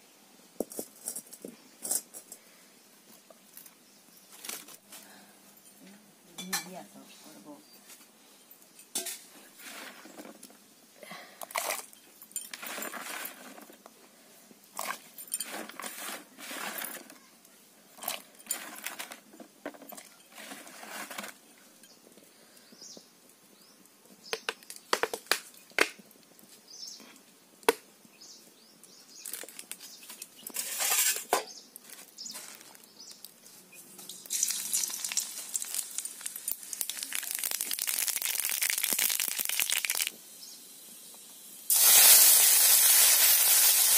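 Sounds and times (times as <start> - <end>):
cooking utensils clinking and knocking: 8.8 - 9.3
seeds sizzling in hot oil: 34.0 - 43.9.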